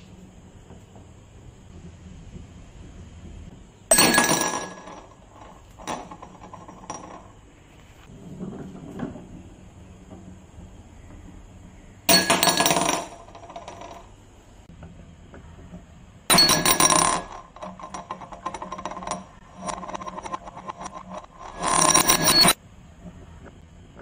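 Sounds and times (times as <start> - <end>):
marble rattling around a glass: 3.9 - 7.4, 12.1 - 14.1, 16.3 - 22.6.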